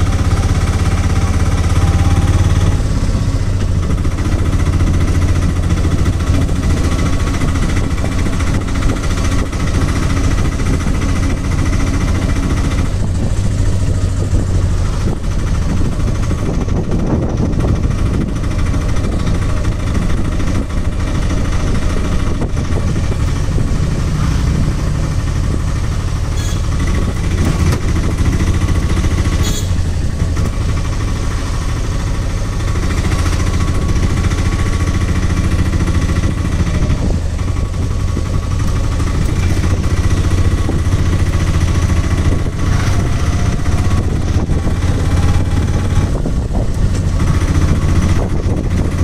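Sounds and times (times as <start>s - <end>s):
road noise: 0.0s - 49.0s
small vehicle engine running: 0.0s - 49.0s.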